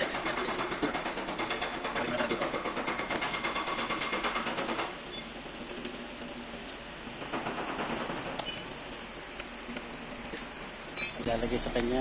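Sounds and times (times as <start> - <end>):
rhythmic mechanical rattle: 0.0 - 9.3.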